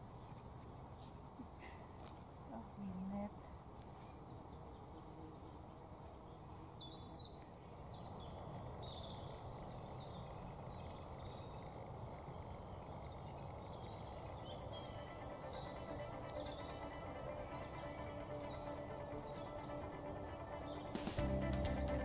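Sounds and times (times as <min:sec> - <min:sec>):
songbirds whistling and twittering: 0:06.3 - 0:22.0
low background rush: 0:09.1 - 0:22.0.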